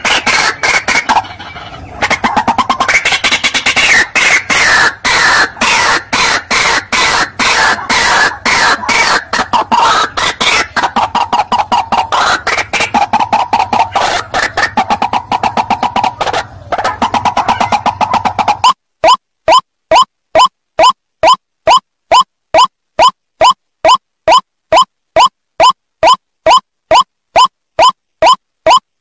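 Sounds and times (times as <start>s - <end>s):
waterhen harsh repeated calls: 0.0s - 28.9s.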